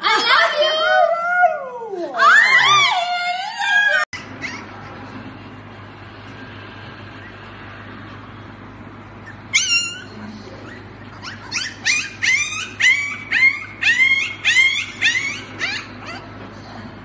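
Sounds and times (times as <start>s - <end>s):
puppy yipping: 4.2s - 5.0s, 9.2s - 16.3s.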